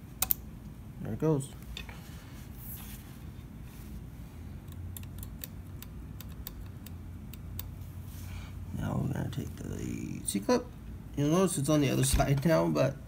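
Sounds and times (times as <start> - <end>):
faint low hum: 0.0 - 13.0
metallic clicks and taps: 4.7 - 7.8.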